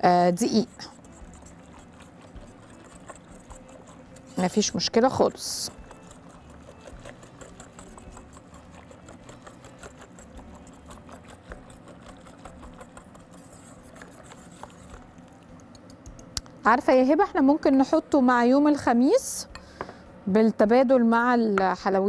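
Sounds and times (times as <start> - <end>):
utensil scraping a cooking pot: 0.0 - 15.3
low steady hum: 0.0 - 22.0.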